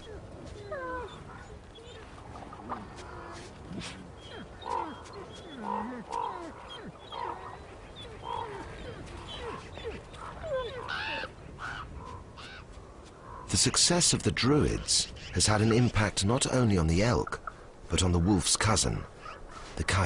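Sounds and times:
wolf whining and yelping: 0:00.0 - 0:11.4
wolves growling: 0:00.0 - 0:11.4
high wolf cry: 0:00.0 - 0:11.9.

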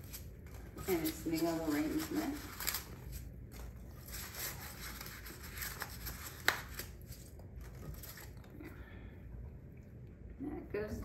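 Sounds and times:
packing material rustling: 0:00.0 - 0:08.5.

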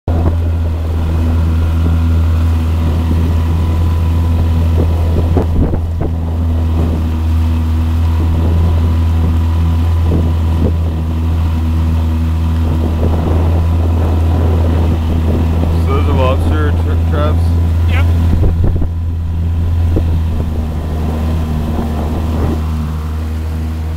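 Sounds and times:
motorboat engine droning: 0:00.0 - 0:23.9.

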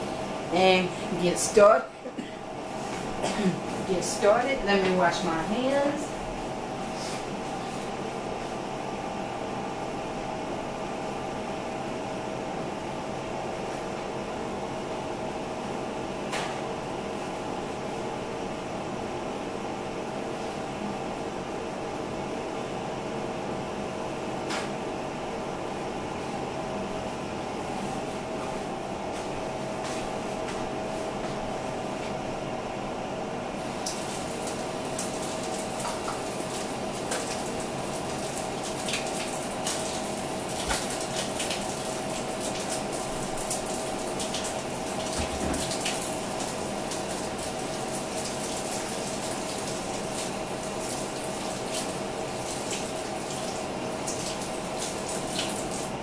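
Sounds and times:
steady hum: 0:00.0 - 0:56.0
tap running into a sink: 0:40.6 - 0:41.6, 0:45.0 - 0:46.0.

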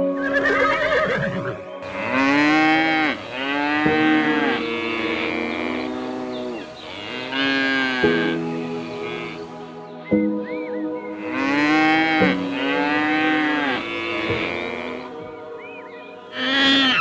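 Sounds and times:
animal calls rising and falling: 0:00.2 - 0:09.6, 0:16.3 - 0:17.0.

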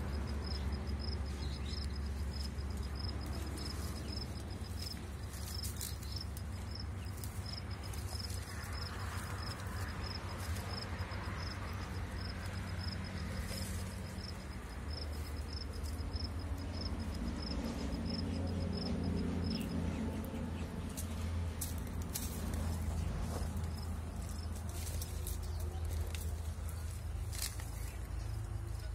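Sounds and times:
cricket chirping: 0:00.0 - 0:19.8
low steady rumble: 0:00.0 - 0:28.9.

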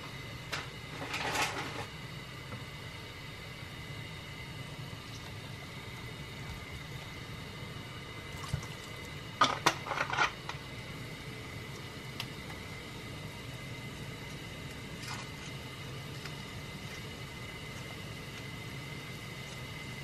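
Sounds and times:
steady hum: 0:00.0 - 0:20.0
liquid splashing into pot: 0:08.4 - 0:09.0.

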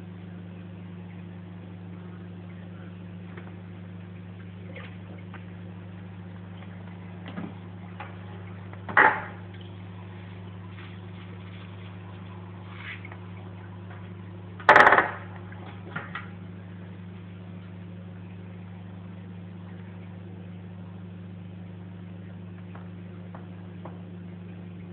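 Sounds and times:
aquarium filter pump humming: 0:00.0 - 0:24.9.

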